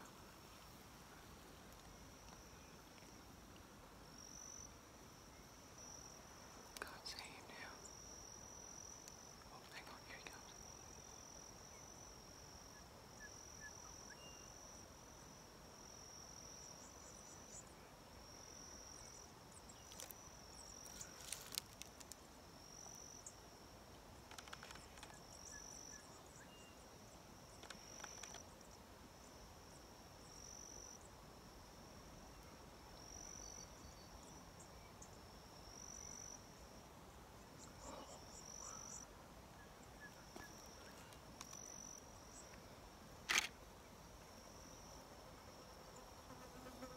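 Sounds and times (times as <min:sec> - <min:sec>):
insect high-pitched trills: 0:18.7 - 0:23.5, 0:27.4 - 0:28.7
faint clicks: 0:23.9 - 0:25.2, 0:27.5 - 0:28.4.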